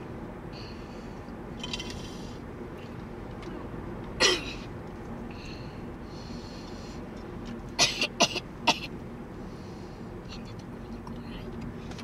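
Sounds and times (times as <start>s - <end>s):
person coughing: 4.2s - 4.7s, 7.8s - 8.9s.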